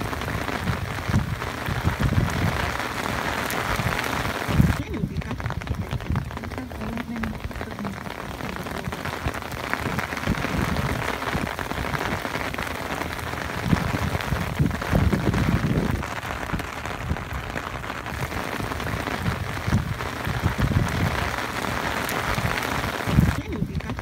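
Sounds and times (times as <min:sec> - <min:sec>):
heavy rain hissing: 0:00.0 - 0:24.0
low rumbles: 0:00.0 - 0:24.0.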